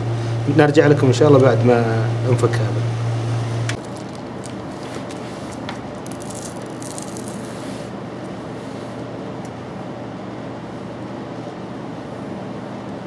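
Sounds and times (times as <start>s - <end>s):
room hum: 3.5s - 7.9s.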